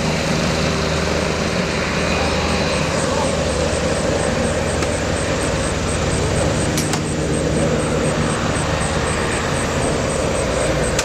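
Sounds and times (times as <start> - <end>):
helicopter flying over: 0.0 - 11.0.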